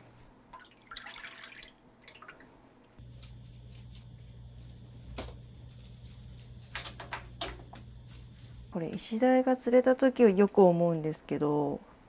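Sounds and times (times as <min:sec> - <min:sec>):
low steady hum: 0:00.0 - 0:12.0
soft rustles: 0:05.6 - 0:07.0, 0:07.9 - 0:08.8.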